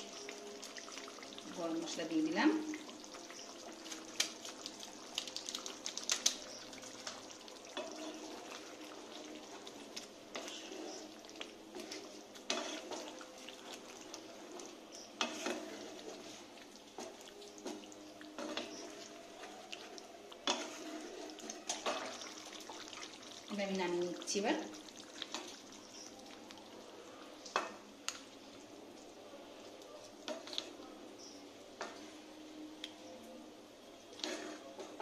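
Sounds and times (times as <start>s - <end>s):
thick curry squelching: 2.7s - 23.5s
spatula knocking and scraping pan: 15.2s - 15.8s.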